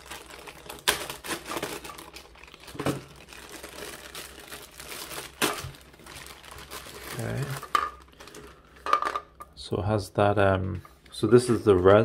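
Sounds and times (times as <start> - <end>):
plastic bag crinkling: 0.0 - 9.3
sharp plastic crackles: 0.0 - 9.4.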